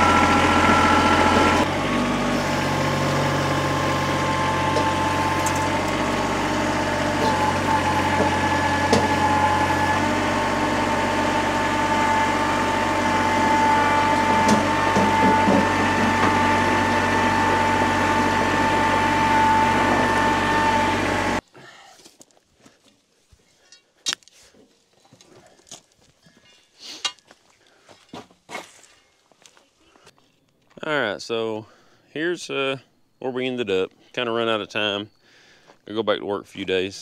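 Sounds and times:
motor whining and humming: 0.0 - 21.4.

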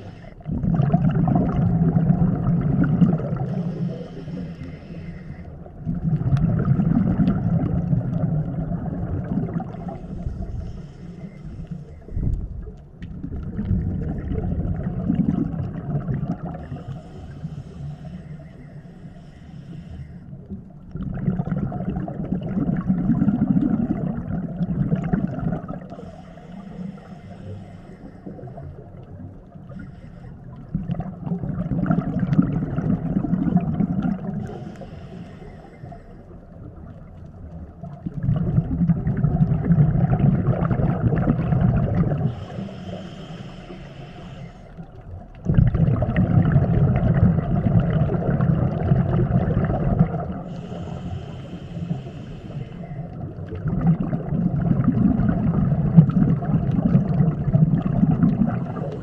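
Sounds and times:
diver inhaling through regulator: 0.0 - 12.4, 15.1 - 20.6, 22.8 - 31.0, 31.9 - 36.6, 40.8 - 45.0, 47.4 - 53.5, 55.2 - 59.0
bubbling exhale: 0.0 - 37.1, 37.9 - 59.0.

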